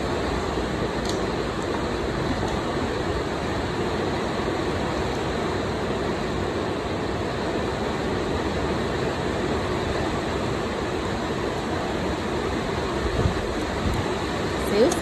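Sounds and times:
fan running: 0.0s - 15.0s.

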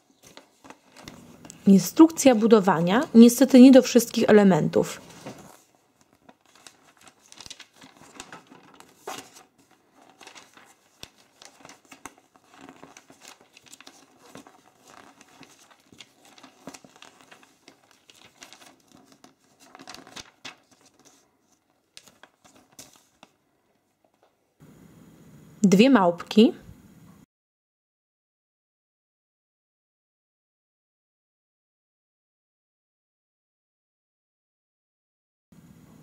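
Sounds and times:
paper sheets tapping and flapping: 0.0s - 3.4s, 4.8s - 23.4s
paper pages rustling: 0.0s - 24.4s.

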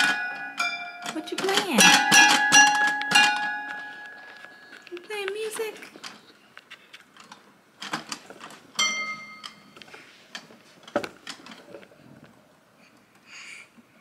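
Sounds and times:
toy piano keys knocking: 0.0s - 4.0s
toy piano note ringing: 0.0s - 4.2s.

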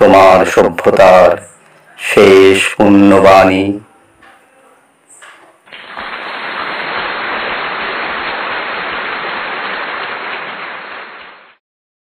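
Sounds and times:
steady rushing noise: 5.9s - 11.6s.

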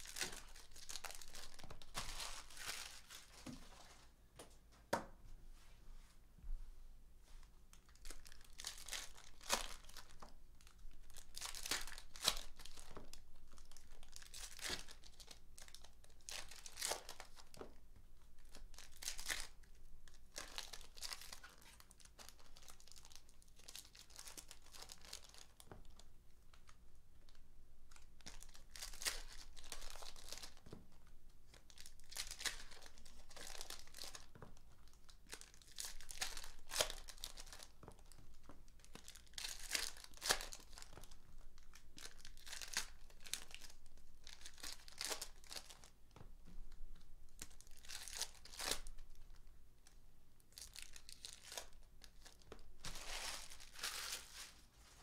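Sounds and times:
foil wrappers torn and crumpled: 0.0s - 3.3s, 7.9s - 17.7s, 18.4s - 26.0s, 28.0s - 30.6s, 31.6s - 38.2s, 38.9s - 46.0s, 47.4s - 49.2s, 50.6s - 54.6s.

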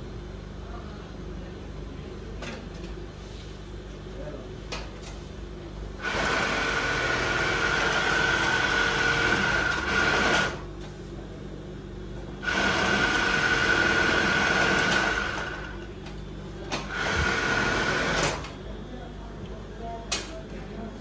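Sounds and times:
sewing machine whine: 6.0s - 10.6s, 12.4s - 15.9s, 16.8s - 18.5s.

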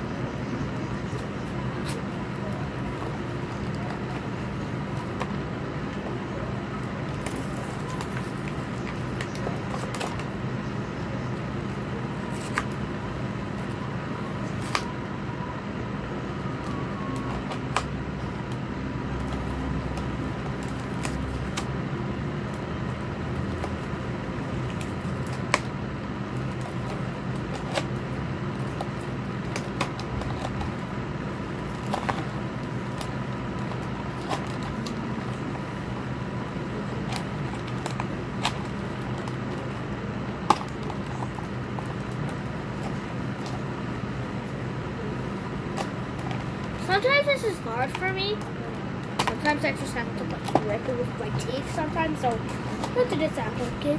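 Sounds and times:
steady background hum: 0.0s - 53.9s
packaging clicking and crackling: 22.4s - 44.6s.

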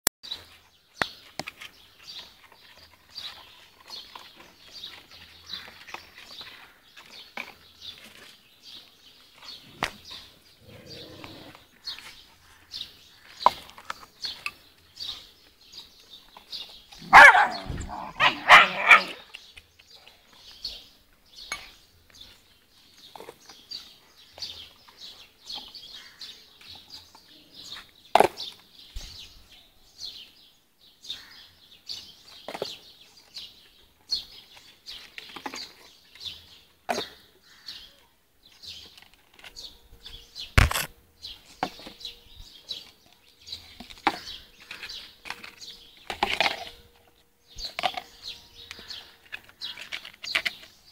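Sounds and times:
puppies barking and yelping: 17.0s - 19.2s.

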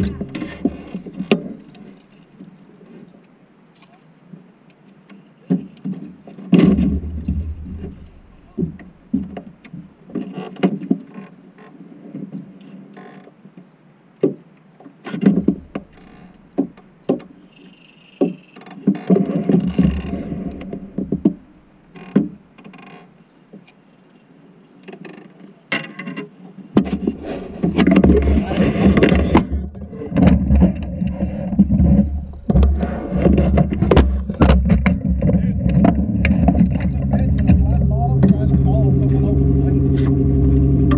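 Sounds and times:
water sloshing against boat hull: 5.5s - 11.3s, 15.1s - 22.4s
low rumble: 6.7s - 10.0s, 15.4s - 17.0s, 19.7s - 22.5s, 30.8s - 34.2s, 35.3s - 40.9s.

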